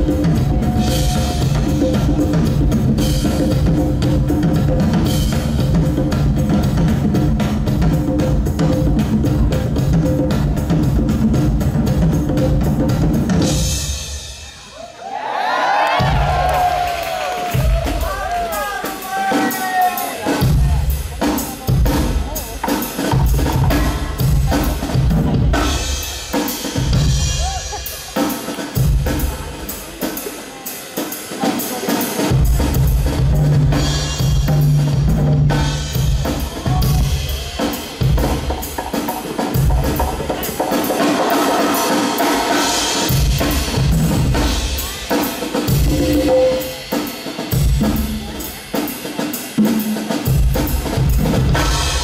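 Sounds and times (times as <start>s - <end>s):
drum-kit beat: 0.0s - 15.2s, 15.8s - 52.0s
heavy bass line: 45.7s - 46.9s.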